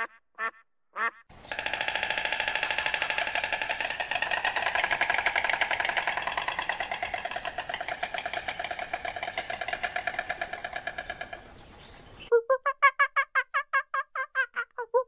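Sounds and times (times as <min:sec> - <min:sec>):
stork bill clattering: 0:01.3 - 0:12.1.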